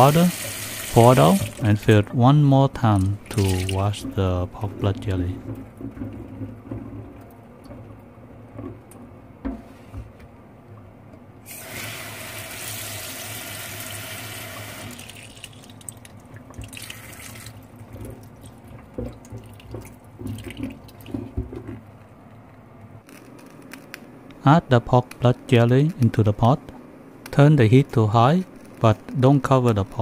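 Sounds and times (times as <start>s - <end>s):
tap water running into container: 0.0s - 1.9s, 2.8s - 8.0s, 11.5s - 21.7s
container knocking and splashing: 17.9s - 21.8s.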